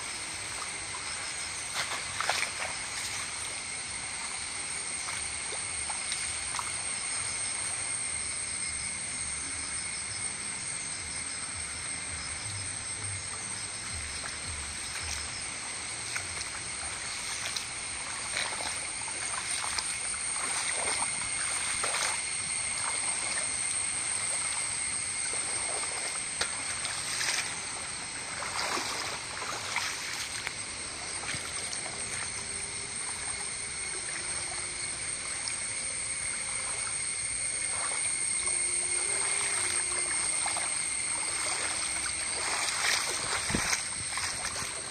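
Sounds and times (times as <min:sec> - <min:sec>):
floodwater rushing and swirling: 0:00.0 - 0:07.8, 0:13.4 - 0:44.9
small water splashes: 0:00.0 - 0:07.8, 0:13.3 - 0:44.9
high-pitched whine: 0:28.4 - 0:44.9.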